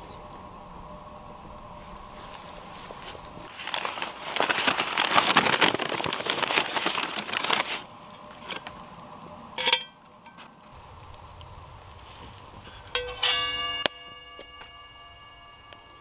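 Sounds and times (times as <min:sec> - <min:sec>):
packaging crinkling: 0:02.2 - 0:08.8
ringing clink: 0:09.6 - 0:10.4, 0:12.7 - 0:16.0.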